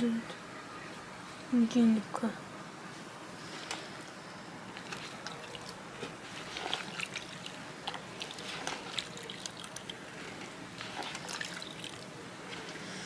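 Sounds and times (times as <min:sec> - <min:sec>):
water splashing in basin: 0:06.5 - 0:10.0, 0:10.8 - 0:12.0.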